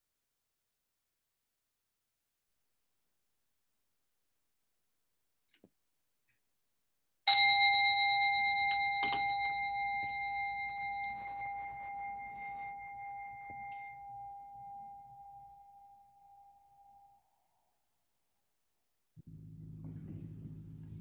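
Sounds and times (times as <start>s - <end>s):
singing bowl ringing: 7.3s - 17.6s.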